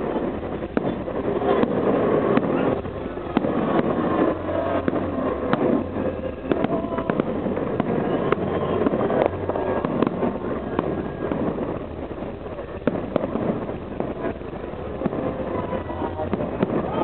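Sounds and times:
fireworks bangs and crackles: 0.0 - 17.0.

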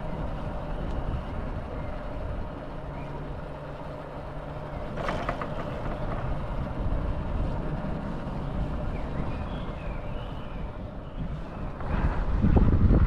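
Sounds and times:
vehicle engine rumbling: 0.0 - 13.0
bird whistling calls: 8.9 - 11.7.

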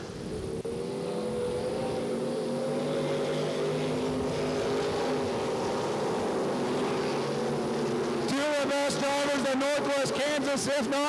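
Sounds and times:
race car engines droning: 0.0 - 11.0.

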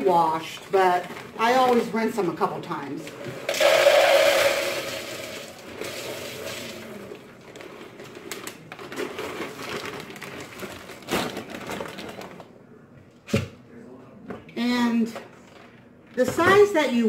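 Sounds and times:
beans pouring into bowl: 3.5 - 7.0
plastic bag crinkling: 3.6 - 12.5.

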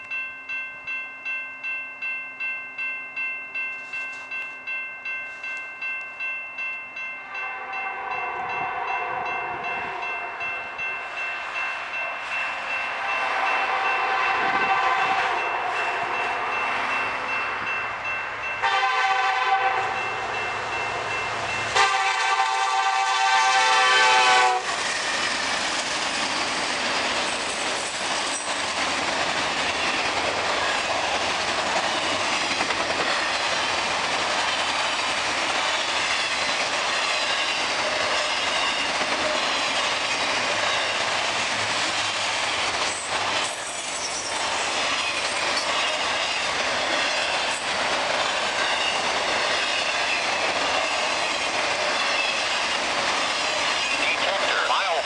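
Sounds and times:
train rolling past: 0.0 - 55.0
locomotive horn blasts: 7.2 - 10.1, 13.2 - 15.8, 18.6 - 20.0, 21.8 - 24.7
wheels clicking over rail joints: 24.7 - 54.0.

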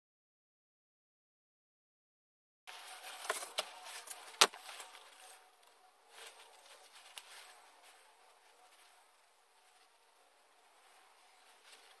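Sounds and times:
faint rustling: 2.8 - 12.0.

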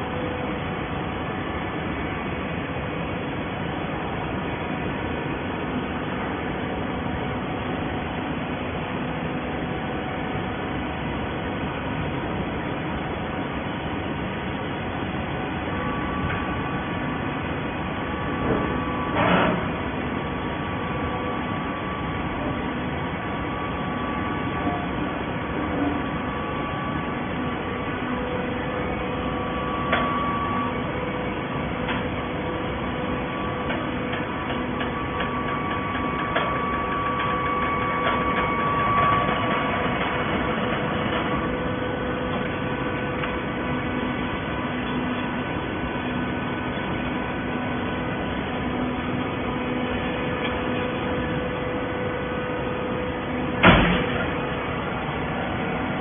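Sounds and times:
hydraulic machine humming: 0.0 - 56.0
machine knocks and clanks: 18.4 - 19.7, 53.6 - 54.4.

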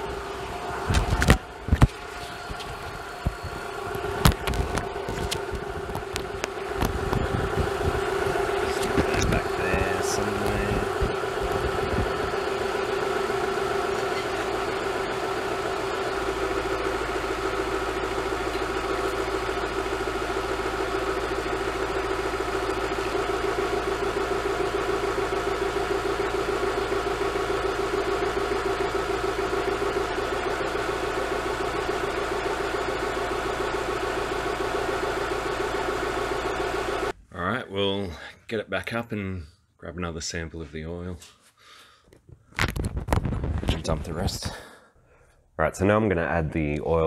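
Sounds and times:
car engine idling: 0.0 - 37.2.

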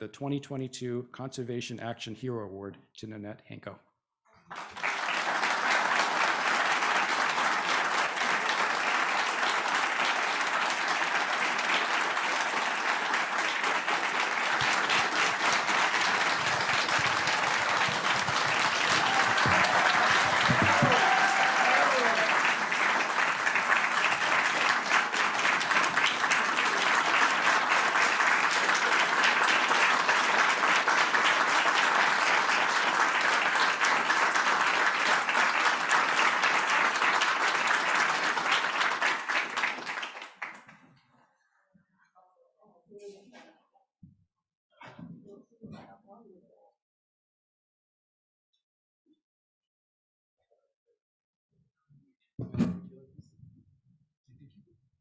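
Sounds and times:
crowd applauding: 4.4 - 40.8.

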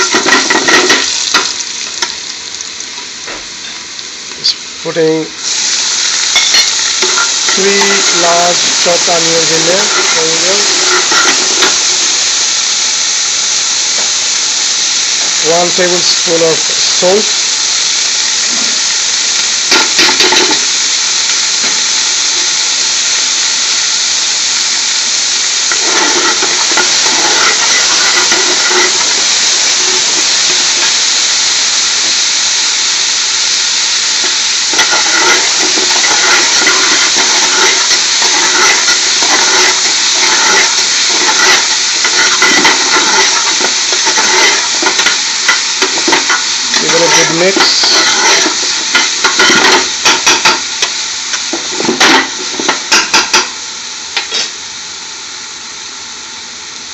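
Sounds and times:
stirring in a pan: 0.0 - 3.1, 5.4 - 12.1, 25.7 - 30.9, 34.2 - 53.4
onions frying in hot oil: 0.0 - 56.9.

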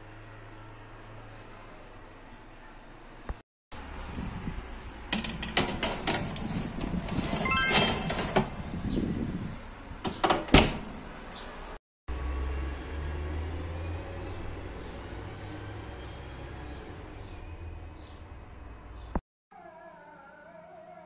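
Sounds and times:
oven door shutting: 5.1 - 8.6, 10.0 - 11.0.

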